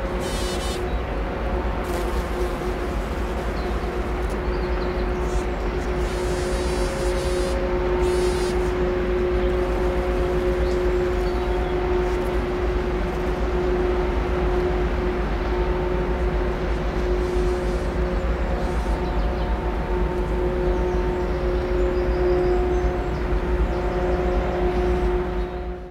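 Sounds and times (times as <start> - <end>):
ship machinery droning: 0.0 - 25.9
fly buzzing: 0.2 - 0.9, 1.8 - 4.4, 5.2 - 8.8.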